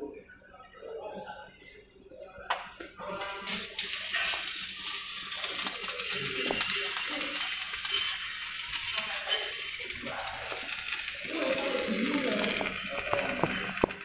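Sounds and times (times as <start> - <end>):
welding arc crackling hiss: 2.9 - 14.0.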